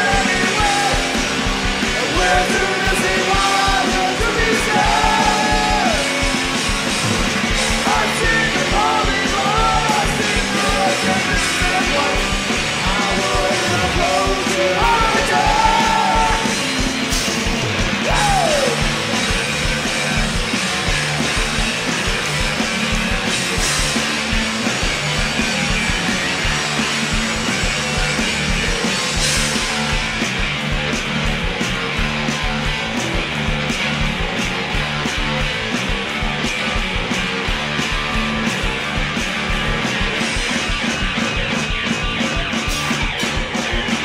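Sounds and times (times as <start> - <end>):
person singing: 0.0 - 1.2, 2.0 - 6.4, 7.8 - 16.6, 18.0 - 18.9
drum beat: 0.0 - 44.0
guitars: 0.0 - 44.0.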